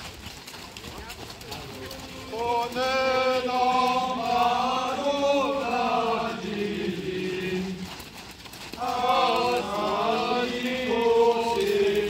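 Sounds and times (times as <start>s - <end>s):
group singing a slow hymn: 2.2s - 8.2s, 8.8s - 12.0s.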